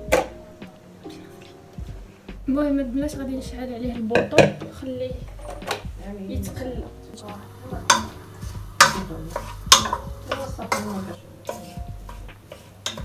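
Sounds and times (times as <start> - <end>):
wooden spoon knocking metal pot: 3.9 - 7.0, 7.8 - 13.0
spoon stirring food in pot: 7.8 - 13.0.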